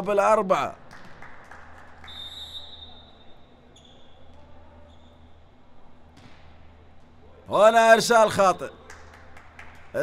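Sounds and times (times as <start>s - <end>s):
faint hall noise: 0.0s - 10.0s
referee's whistle: 2.0s - 4.2s.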